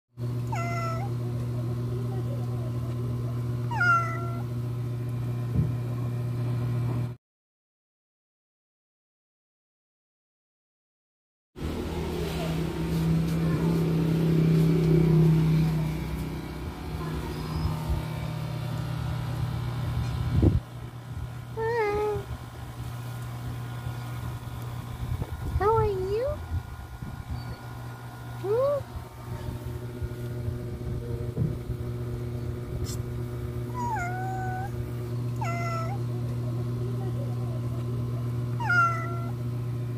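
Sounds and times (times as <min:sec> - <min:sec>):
low mechanical hum: 0:00.2 - 0:07.2, 0:11.6 - 0:39.9
cat meowing: 0:00.5 - 0:01.2, 0:03.7 - 0:04.5, 0:33.7 - 0:34.8, 0:35.4 - 0:36.0, 0:38.6 - 0:39.4.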